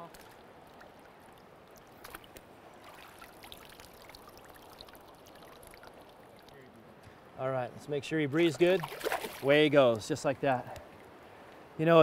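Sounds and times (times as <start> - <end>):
small water splashes: 0.0 - 6.7, 8.4 - 10.0
river water trickling and lapping: 0.0 - 12.0.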